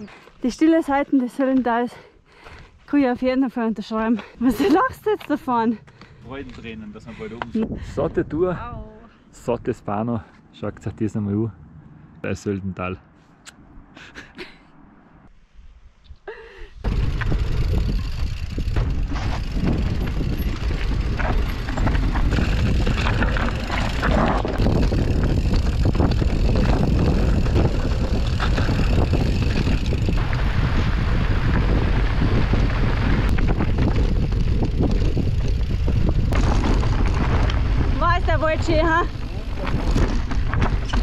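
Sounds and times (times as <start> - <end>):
bike rattling and knocking: 16.8 - 41.0
bike rolling over rough trail: 16.8 - 41.0.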